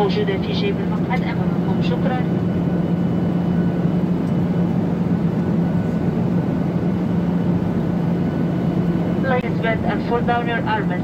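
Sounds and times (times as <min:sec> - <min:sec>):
airliner cabin drone: 0:00.0 - 0:11.0.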